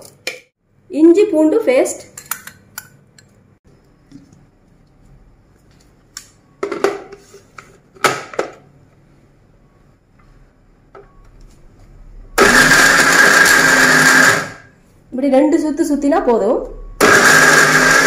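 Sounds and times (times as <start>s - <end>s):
blender motor whining: 12.4s - 14.7s, 17.0s - 18.0s.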